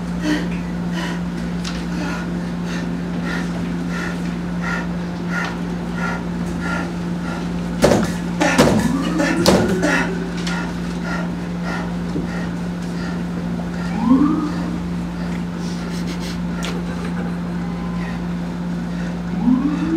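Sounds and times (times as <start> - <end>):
steady hum: 0.0 - 19.9
sharp knocks: 7.8 - 9.8.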